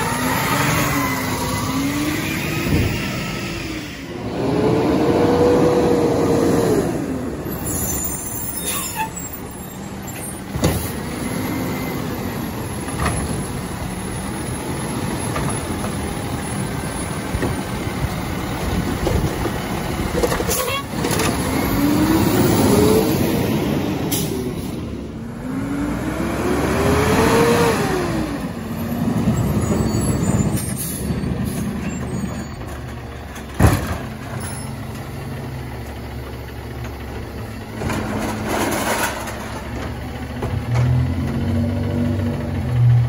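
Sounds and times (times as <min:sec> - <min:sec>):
diesel truck engine revving: 0:00.0 - 0:07.6, 0:20.9 - 0:32.3, 0:35.0 - 0:43.0.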